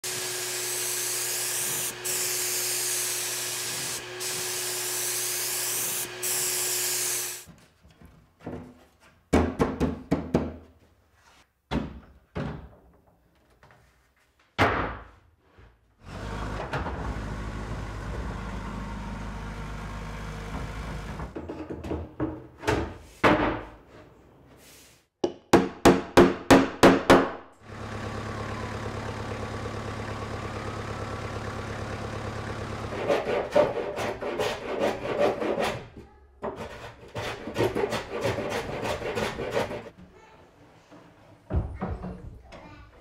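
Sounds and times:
wooden knocks and thunks: 0:11.7 - 0:13.1, 0:20.6 - 0:23.8, 0:41.5 - 0:42.6.

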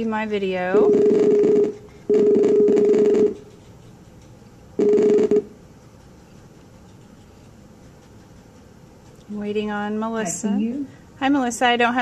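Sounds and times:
video call ringing tone: 0:00.7 - 0:03.4, 0:04.8 - 0:05.6.

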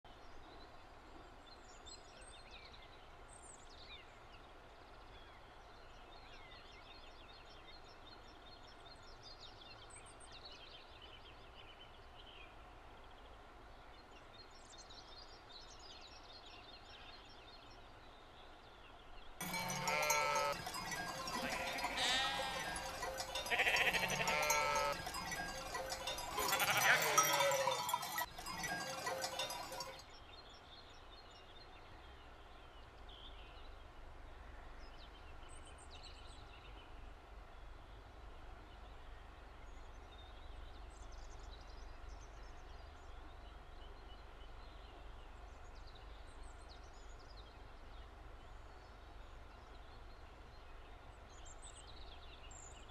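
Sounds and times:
sheep bleating: 0:19.4 - 0:29.9.

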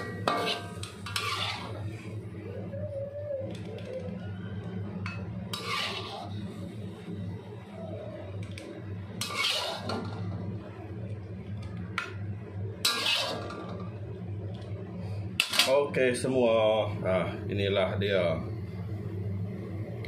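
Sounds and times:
metal ladle scraping a wok: 0:00.0 - 0:02.1, 0:05.5 - 0:06.5, 0:09.2 - 0:10.2, 0:12.8 - 0:13.8
steady low hum: 0:00.0 - 0:20.0.

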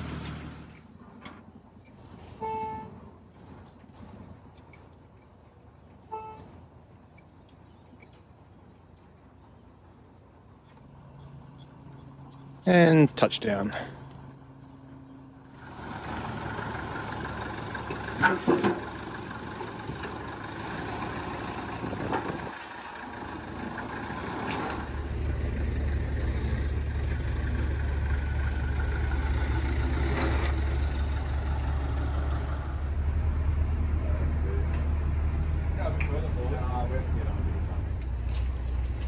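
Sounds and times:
crane engine droning: 0:13.6 - 0:39.0.

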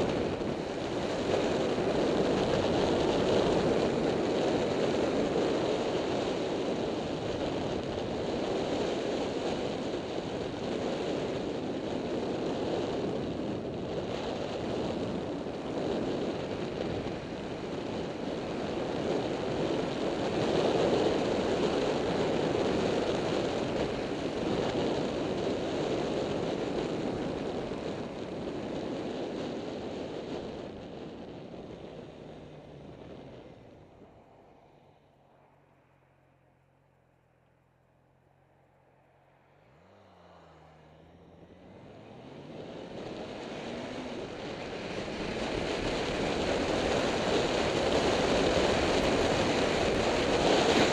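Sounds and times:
wind rushing over microphone: 0:00.0 - 0:35.2, 0:39.7 - 0:50.9
road noise: 0:00.0 - 0:50.9
motorcycle engine: 0:39.2 - 0:50.9.

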